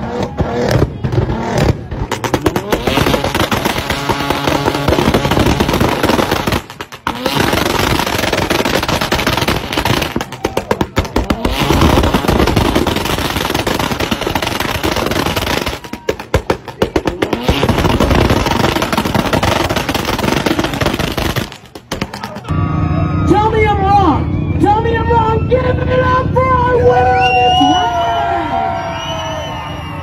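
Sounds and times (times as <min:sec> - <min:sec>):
sports car exhaust revving: 0:00.0 - 0:10.2, 0:10.8 - 0:15.6
exhaust pops and bangs: 0:00.0 - 0:22.5.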